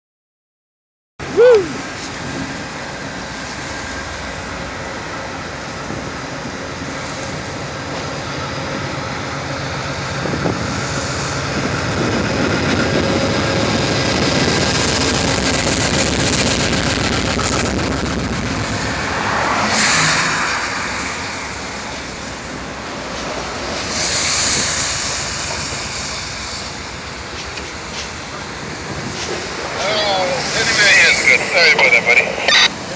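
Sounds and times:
diesel locomotive passing: 1.2 - 32.9
train cars rolling over rails: 1.8 - 32.9.

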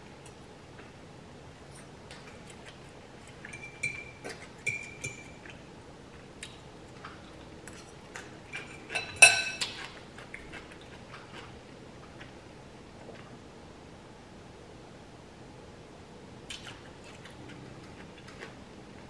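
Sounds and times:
fork clinking against glass bowl: 3.5 - 5.4, 8.6 - 9.8.

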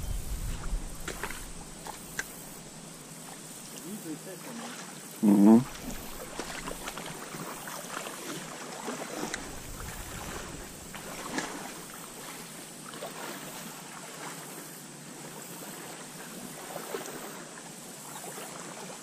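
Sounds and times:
wind on microphone: 0.0 - 2.9, 9.3 - 12.2
stream water lapping around legs: 0.0 - 19.0
small ticks: 1.0 - 2.5.

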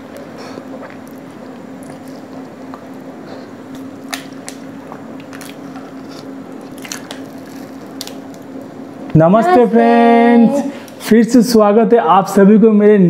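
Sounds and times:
steady low hum: 0.0 - 13.0
wet squishy chewing: 0.1 - 3.0, 3.7 - 8.4.

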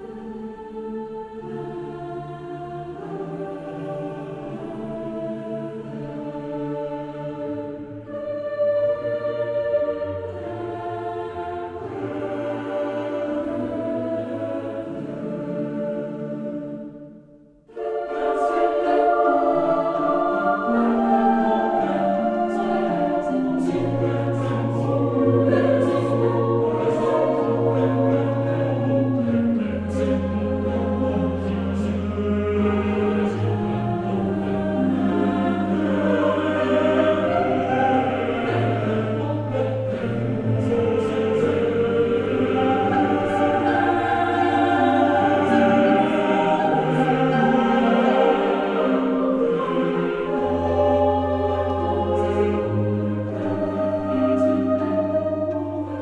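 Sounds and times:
choir singing in harmony: 0.0 - 56.0.

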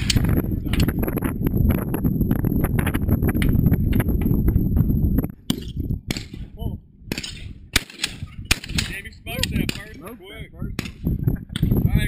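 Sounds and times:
camera handling rumble and knocks: 0.0 - 6.3.

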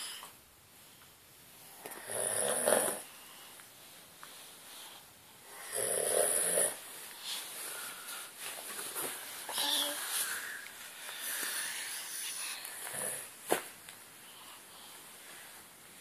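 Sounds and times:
man snoring: 2.0 - 3.0, 5.6 - 6.8, 12.9 - 13.3.

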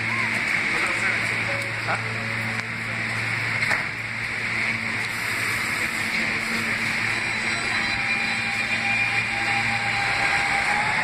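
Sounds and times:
subway train hiss: 0.0 - 11.0
subway train low hum: 0.0 - 11.0.

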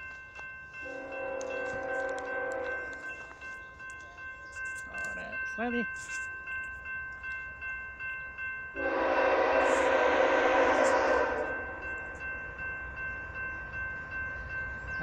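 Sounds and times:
railroad crossing bell ringing: 0.0 - 15.0
locomotive horn blast: 0.8 - 3.0, 8.8 - 11.8.

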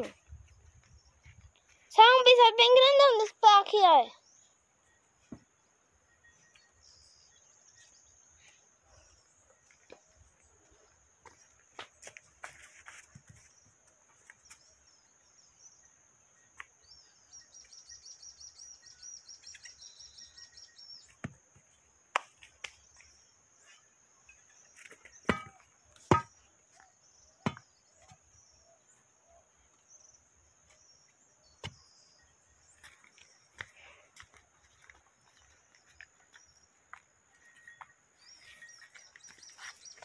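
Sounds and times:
sharp knocks: 25.3 - 26.3.

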